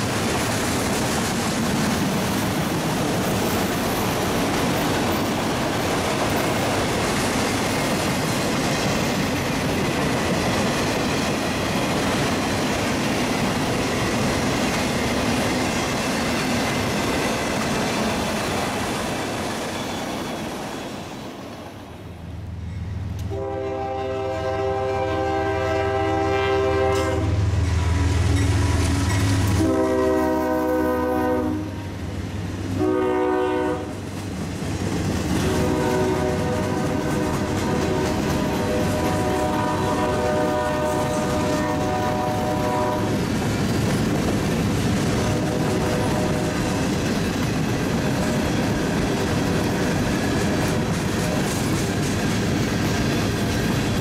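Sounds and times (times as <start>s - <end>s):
train rumbling past: 0.0s - 54.0s
locomotive horn blasts: 23.2s - 27.5s, 29.5s - 32.0s, 32.8s - 34.0s, 35.4s - 43.2s, 45.2s - 46.6s.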